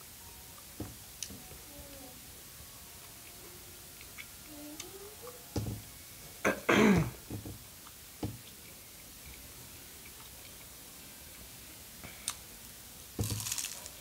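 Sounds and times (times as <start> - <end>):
chewing crunches: 13.2 - 14.0
crunch of biting fried roll: 13.2 - 14.0.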